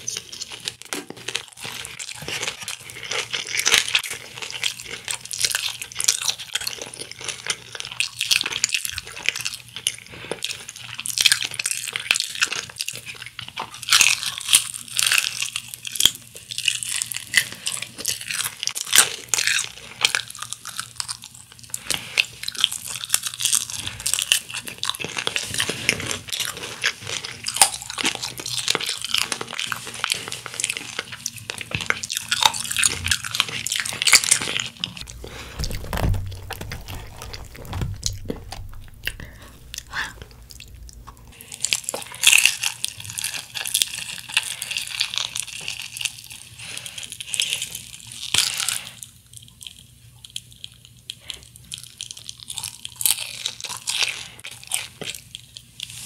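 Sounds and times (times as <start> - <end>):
crunching fried chicken: 0.0 - 56.0
low rumble: 35.0 - 41.3.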